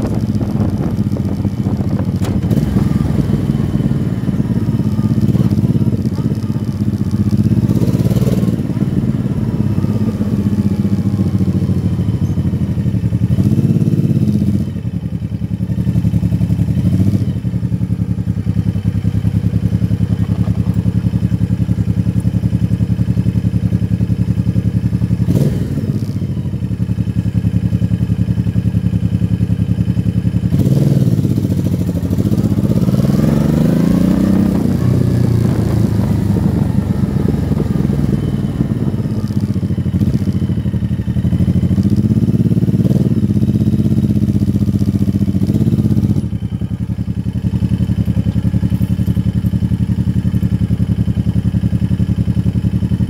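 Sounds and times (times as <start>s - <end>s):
motorcycle engine revving: 0.0s - 53.0s
sharp thump: 1.6s - 2.9s.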